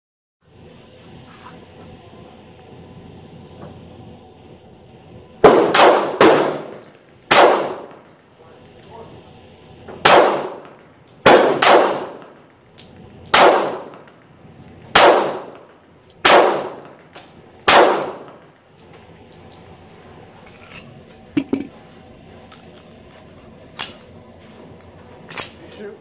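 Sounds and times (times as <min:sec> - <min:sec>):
pistol shots with ringing echo: 0:05.4 - 0:08.1, 0:10.0 - 0:12.4, 0:13.3 - 0:14.1, 0:14.9 - 0:18.4.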